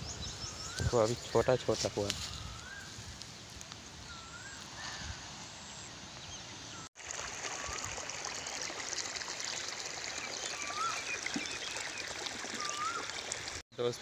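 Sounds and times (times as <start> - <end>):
water gushing from pipe: 7.0 - 13.6.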